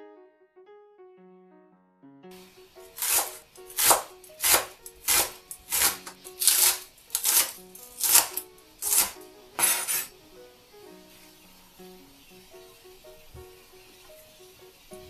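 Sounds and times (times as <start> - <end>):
knife slicing on cutting board: 3.0 - 10.1.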